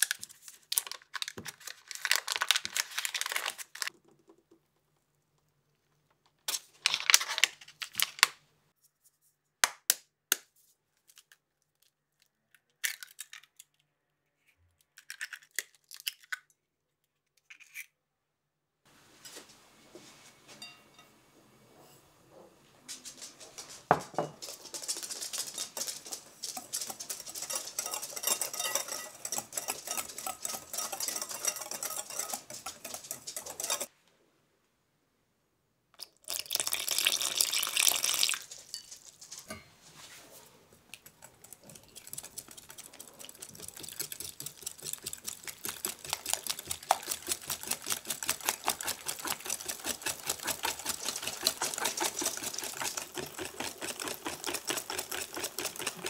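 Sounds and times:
whisk rustling flour in sieve: 0:24.4 - 0:33.9, 0:41.1 - 0:56.0
whisk clicking against glass bowl: 0:25.6 - 0:33.9, 0:41.3 - 0:56.0
liquid pouring: 0:36.0 - 0:38.8, 0:41.5 - 0:56.0.

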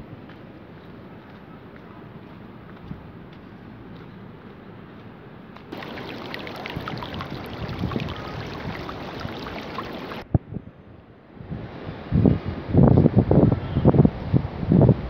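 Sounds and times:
river water rushing over stones: 0:05.7 - 0:10.2.

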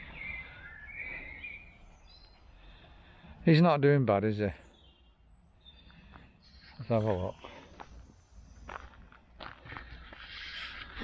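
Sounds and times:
footsteps on dirt path: 0:05.8 - 0:11.0.

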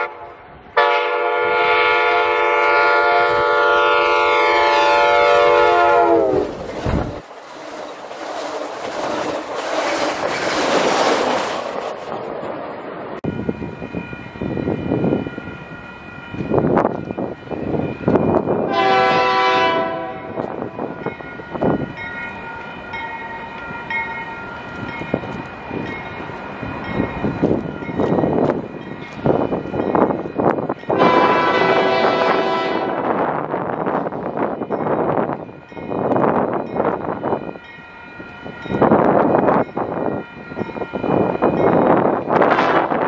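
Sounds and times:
locomotive air horn blast: 0:00.0 - 0:06.5, 0:18.7 - 0:20.5, 0:30.9 - 0:33.2, 0:42.4 - 0:43.0
freight train rumbling past: 0:00.0 - 0:43.0.

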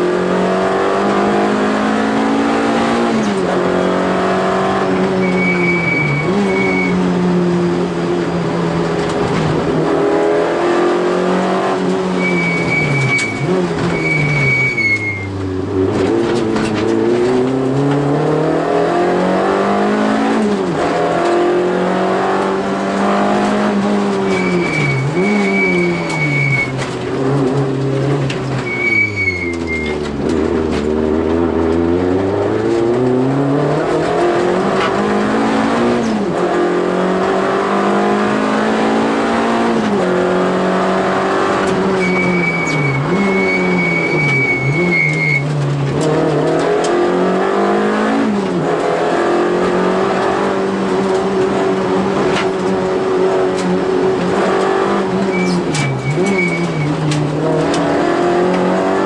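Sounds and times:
car engine revving at full throttle: 0:00.0 - 0:59.0
tyres squealing: 0:05.0 - 0:07.0, 0:12.1 - 0:15.4, 0:24.0 - 0:26.9, 0:28.4 - 0:30.2, 0:41.7 - 0:45.8, 0:55.0 - 0:57.5.

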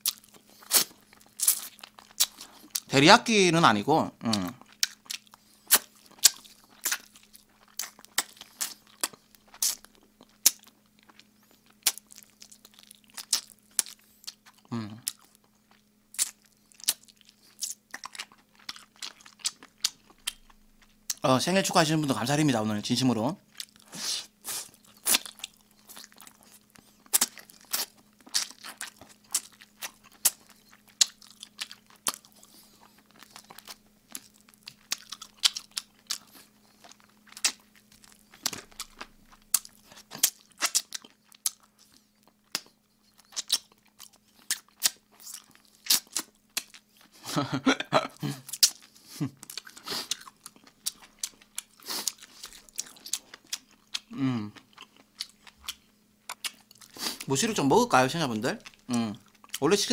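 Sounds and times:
man chewing with mouth smacking: 0:00.0 - 0:02.9, 0:04.2 - 0:21.3, 0:23.4 - 0:59.9
man humming: 0:04.2 - 0:04.6, 0:14.7 - 0:15.0, 0:47.4 - 0:48.4, 0:54.1 - 0:54.6.

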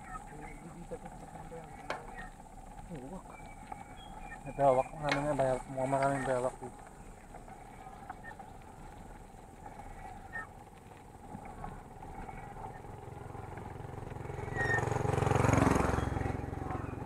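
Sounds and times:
motorcycle engine approaching: 0:00.0 - 0:08.8, 0:09.6 - 0:17.0
light bike clicks: 0:00.0 - 0:17.0
road and wind noise: 0:11.3 - 0:17.0.

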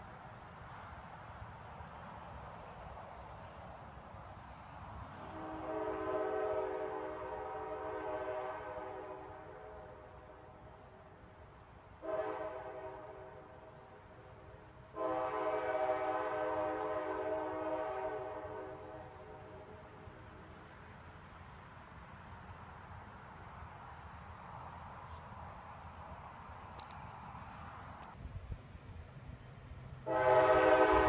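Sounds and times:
distant train horn blasts: 0:05.1 - 0:11.0, 0:12.0 - 0:20.2, 0:30.0 - 0:31.0.

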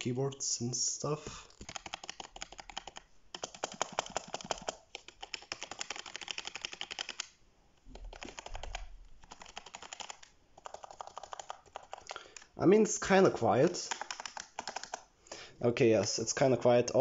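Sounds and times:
fast typing on keyboard: 0:01.5 - 0:07.3, 0:07.9 - 0:12.6, 0:13.7 - 0:15.1.

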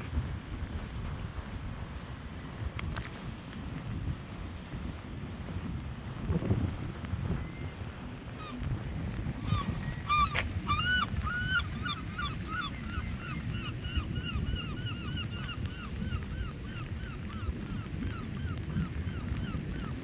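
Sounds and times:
wind rumble on microphone: 0:00.0 - 0:20.0
bird calling in fast series: 0:06.7 - 0:20.0.

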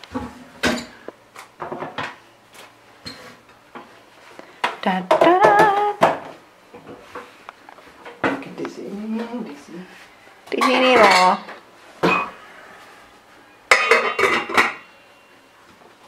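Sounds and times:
metal pot knocking and clinking: 0:13.7 - 0:14.9.

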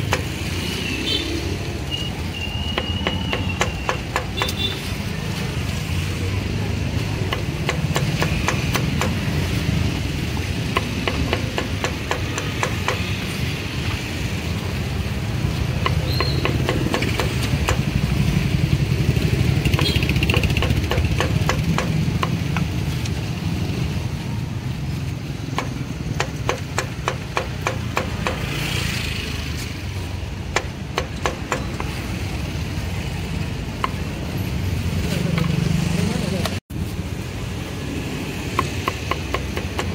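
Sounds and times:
low traffic rumble: 0:00.0 - 0:39.9
cleaver chopping on wooden block: 0:02.7 - 0:04.7, 0:07.2 - 0:09.4, 0:10.7 - 0:13.2, 0:15.8 - 0:18.0, 0:19.6 - 0:22.7, 0:25.5 - 0:28.6, 0:30.5 - 0:32.0, 0:38.5 - 0:39.9.

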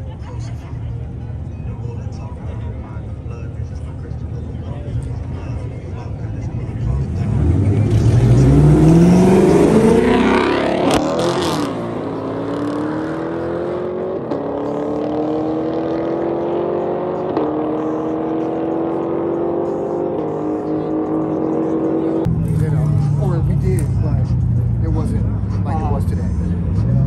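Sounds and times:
cars accelerating hard: 0:06.4 - 0:27.0.

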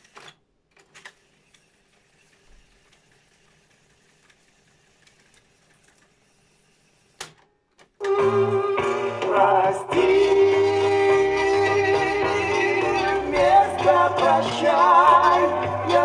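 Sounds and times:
tape reels whirring: 0:00.0 - 0:07.4.

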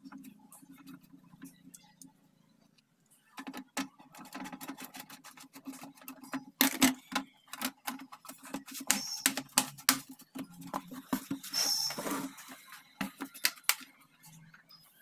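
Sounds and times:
plastic clips clicking and snapping: 0:03.4 - 0:10.9, 0:13.0 - 0:13.9.

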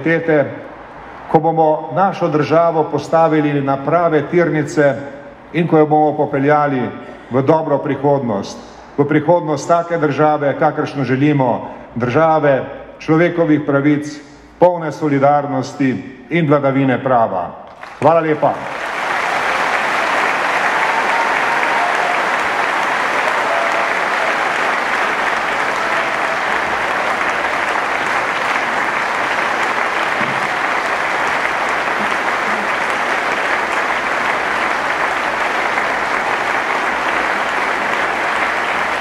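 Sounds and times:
audience applauding: 0:17.7 - 0:39.0.

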